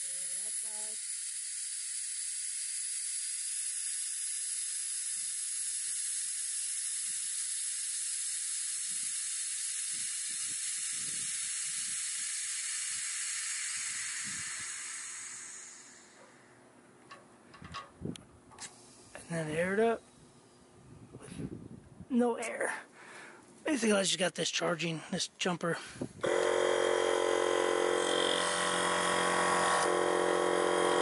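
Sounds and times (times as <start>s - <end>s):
compressed air hissing: 0.0s - 16.6s, 17.5s - 19.5s, 25.8s - 31.0s.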